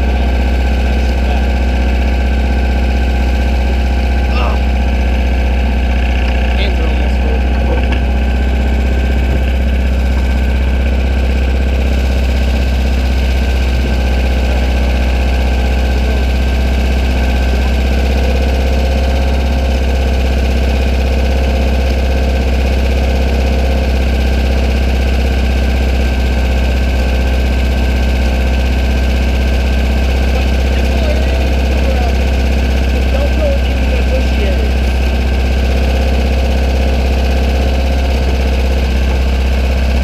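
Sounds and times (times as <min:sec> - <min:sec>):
buggy engine idling: 0:00.0 - 0:40.0.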